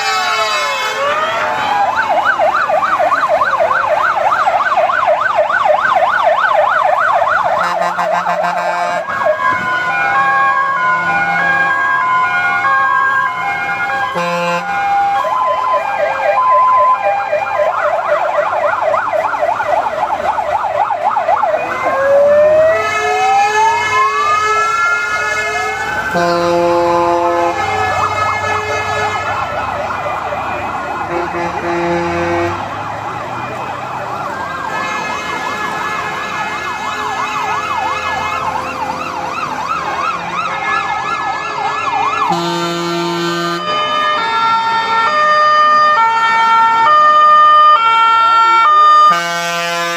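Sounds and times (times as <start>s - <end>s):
fire engine sirens: 0.0s - 49.9s
low horn tones: 14.1s - 15.4s, 23.8s - 29.4s, 31.0s - 32.7s, 42.2s - 44.0s.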